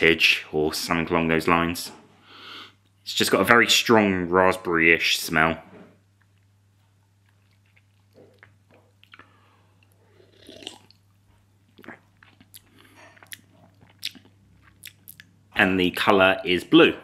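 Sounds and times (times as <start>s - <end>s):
lip smacks and mouth clicks: 7.2s - 11.0s, 11.7s - 15.4s
person sipping soda: 7.3s - 11.0s
person swallowing: 7.5s - 11.0s.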